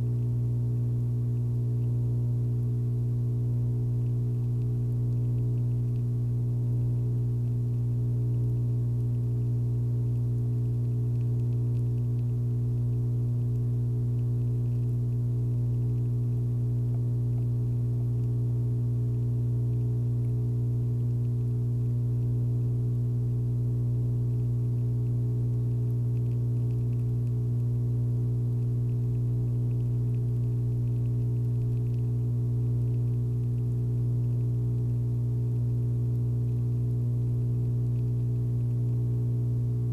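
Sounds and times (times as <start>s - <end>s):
low electrical hum: 0.0s - 39.9s.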